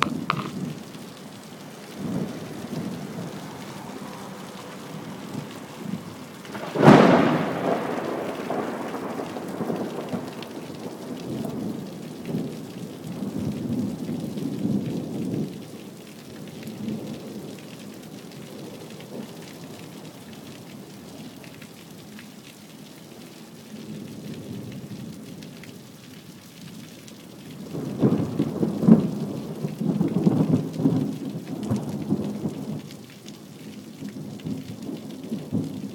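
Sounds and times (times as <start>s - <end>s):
steady rain: 0.0s - 35.9s
thunder crack and rumble: 5.0s - 12.6s.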